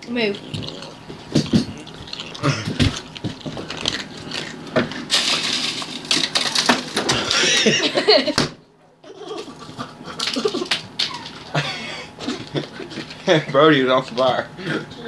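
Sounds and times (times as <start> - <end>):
crunching: 0.3 - 7.5.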